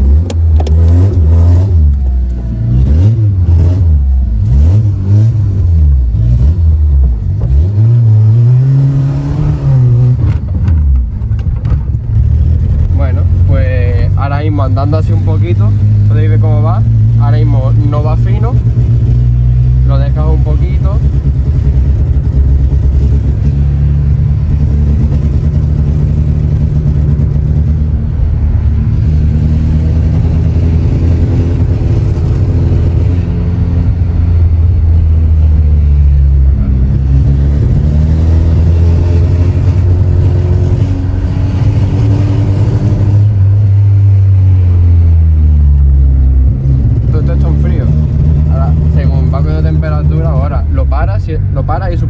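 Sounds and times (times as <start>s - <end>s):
car engine revving rough: 0.0s - 52.0s.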